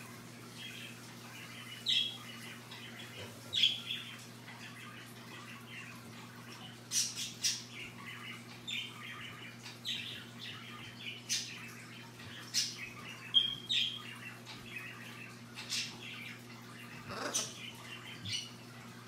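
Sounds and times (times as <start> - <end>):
parrot squawks and chirps: 12.4 - 18.6.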